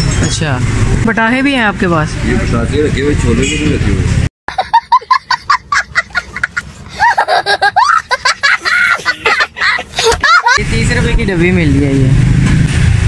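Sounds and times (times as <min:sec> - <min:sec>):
young child laughing: 0:04.5 - 0:10.6.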